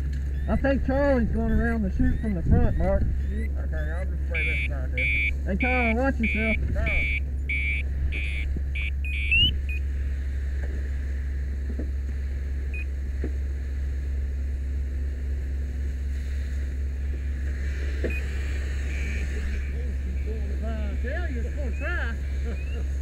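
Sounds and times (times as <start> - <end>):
fire engine pump drone: 0.0 - 23.0
electronic beeping: 0.3 - 9.8, 18.1 - 20.3, 21.5 - 23.0.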